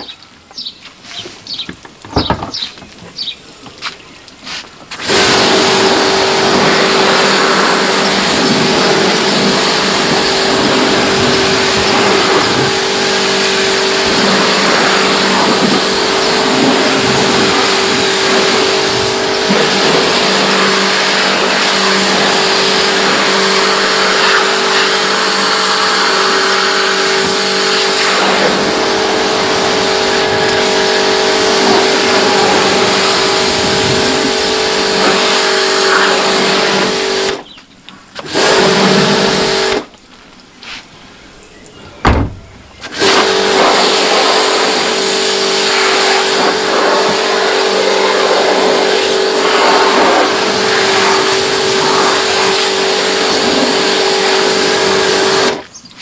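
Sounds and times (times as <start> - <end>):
water jet hissing: 4.5 - 37.4, 38.2 - 39.9, 42.8 - 55.6
pressure washer motor hum: 4.8 - 37.5, 38.2 - 39.9, 42.1 - 55.7.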